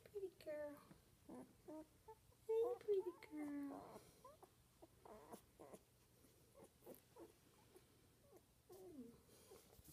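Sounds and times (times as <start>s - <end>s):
puppies squeaking and whimpering: 3.0s - 5.9s.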